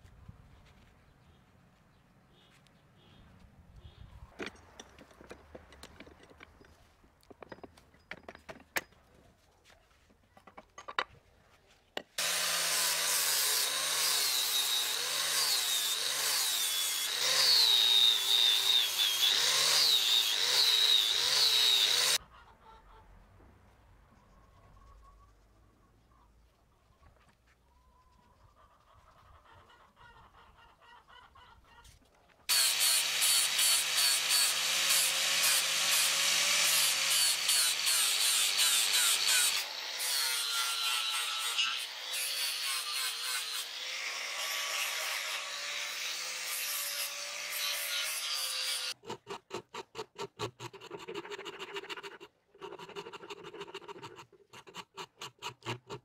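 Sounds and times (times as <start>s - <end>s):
rasp drawn over wood: 48.7s - 56.0s.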